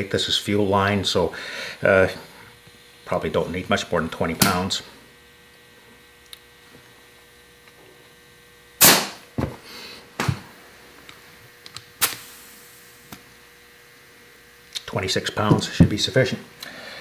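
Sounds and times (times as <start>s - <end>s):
compressed air hissing: 12.0s - 12.9s.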